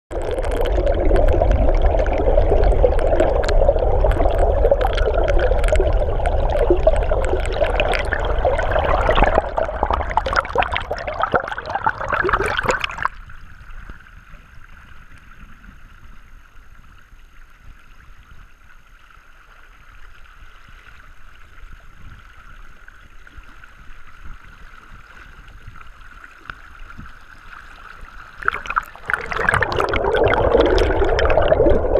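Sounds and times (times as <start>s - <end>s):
muffled underwater rushing: 0.1s - 13.6s, 28.0s - 31.9s.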